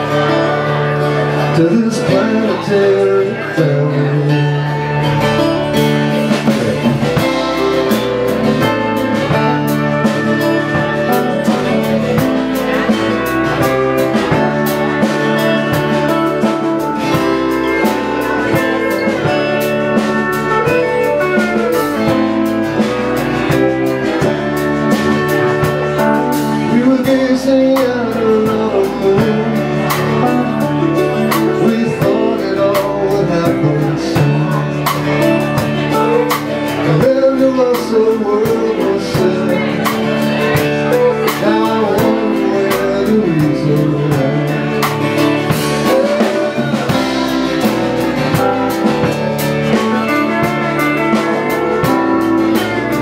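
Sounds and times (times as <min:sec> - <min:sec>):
drum kit beat: 0:00.0 - 0:53.0
guitar: 0:00.0 - 0:53.0
keyboard: 0:00.0 - 0:53.0
sliding melodic line: 0:00.0 - 0:53.0.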